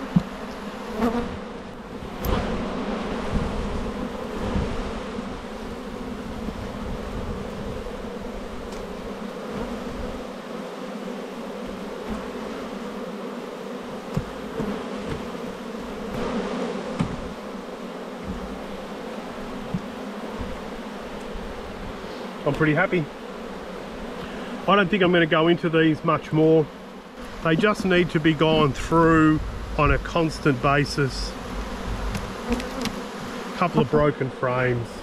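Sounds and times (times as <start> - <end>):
honeybees buzzing: 0.0 - 35.0
knocks: 17.0 - 17.3.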